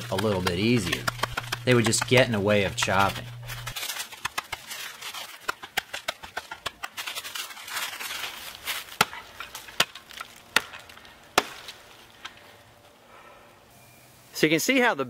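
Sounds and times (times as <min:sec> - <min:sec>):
blade chopping into tree trunk: 0:00.0 - 0:11.8
rustling in dry leaves: 0:03.0 - 0:13.0.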